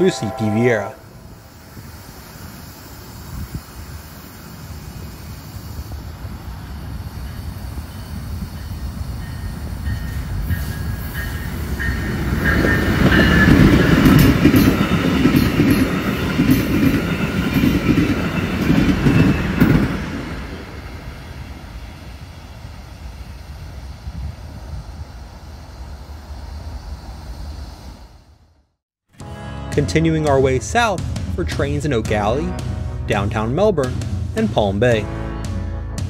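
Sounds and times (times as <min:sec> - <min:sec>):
train rumble: 0:00.0 - 0:28.7
train wheels clicking over rail joints: 0:02.0 - 0:20.6.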